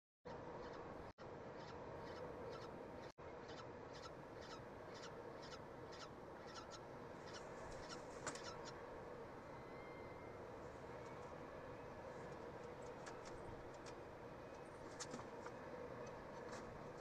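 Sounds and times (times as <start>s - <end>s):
steady hum: 0.4s - 17.0s.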